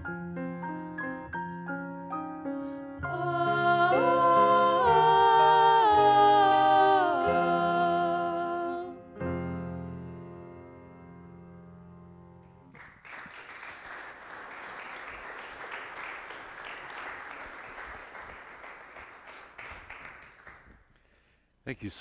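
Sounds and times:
grand piano chord: 0.0 - 12.6
audience applause: 12.7 - 20.8.

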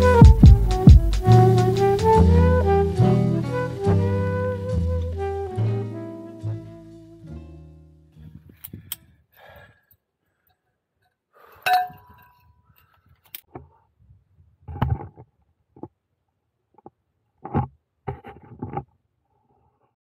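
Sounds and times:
background music: 0.0 - 8.2.

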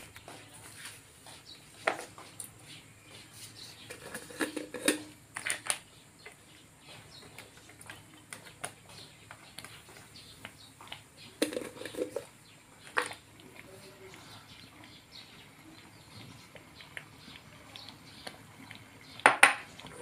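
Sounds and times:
wooden spatula stirring: 6.8 - 14.5
sauce simmering with soft plops: 12.3 - 20.0.

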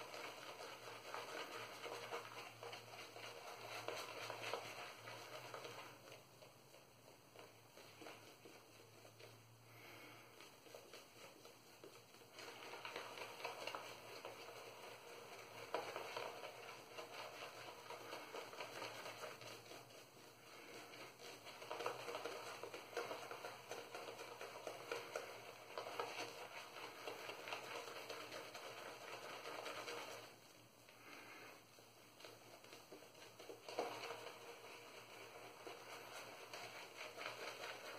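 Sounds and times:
shaving brush swishing lather: 0.0 - 37.9.

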